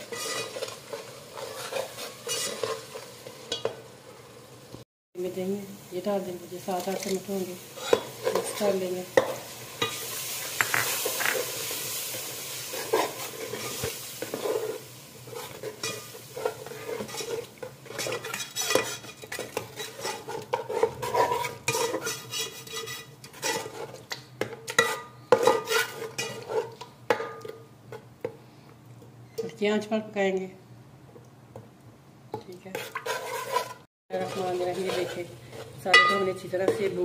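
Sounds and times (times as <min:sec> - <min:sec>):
ladle scraping metal pot: 0:00.0 - 0:03.7, 0:12.8 - 0:24.0, 0:24.7 - 0:26.9, 0:32.7 - 0:36.8
masala sizzling: 0:00.0 - 0:29.9, 0:32.4 - 0:37.0.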